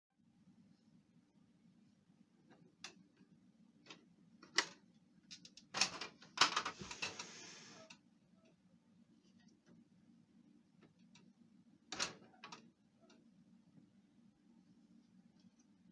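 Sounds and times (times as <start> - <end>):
plastic rattle and scrape: 5.7 - 7.9.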